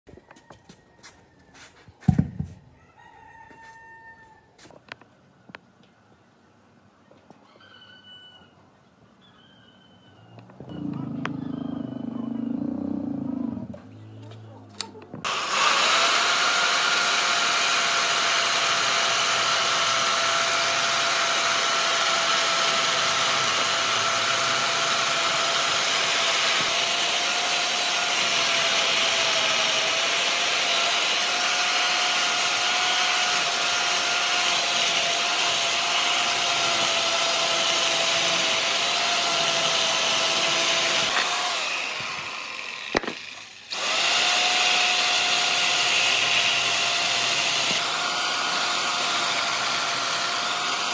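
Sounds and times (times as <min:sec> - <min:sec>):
power tool whining: 0:10.4 - 0:13.7, 0:15.2 - 0:50.9.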